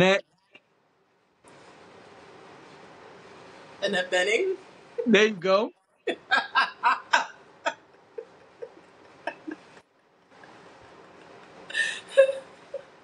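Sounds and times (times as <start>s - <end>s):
woman laughing: 6.1s - 9.7s, 11.7s - 12.9s
breaths: 11.7s - 12.1s.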